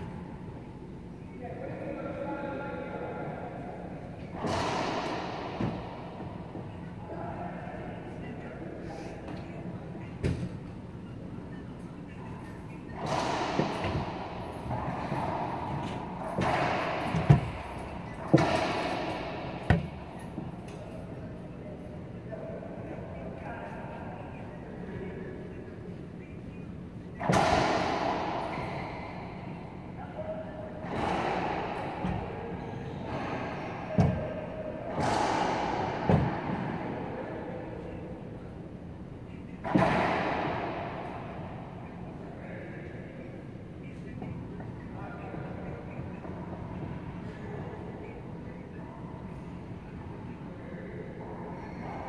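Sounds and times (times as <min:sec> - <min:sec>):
racquet hitting ball: 0:04.1 - 0:06.8, 0:12.4 - 0:21.1, 0:27.2 - 0:29.9, 0:30.6 - 0:37.8, 0:39.6 - 0:42.0
ball hitting walls: 0:04.2 - 0:06.8, 0:12.9 - 0:20.8, 0:33.0 - 0:34.3, 0:34.9 - 0:36.9.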